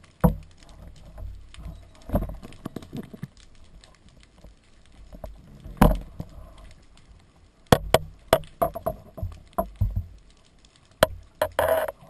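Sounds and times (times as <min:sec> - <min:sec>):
underwater knocks and clicks: 0:00.0 - 0:06.7, 0:07.7 - 0:12.0
low water rumble: 0:00.0 - 0:12.0.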